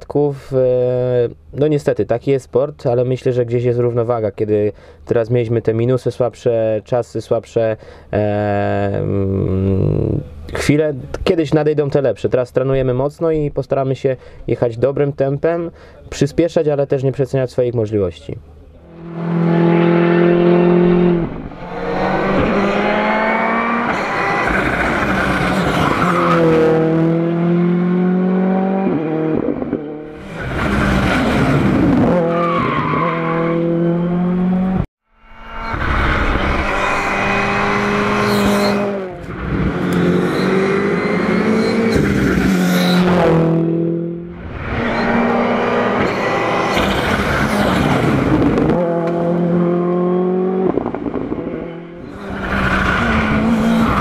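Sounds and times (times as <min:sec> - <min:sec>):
rally car engines revving: 0:18.9 - 0:34.8, 0:35.7 - 0:54.0.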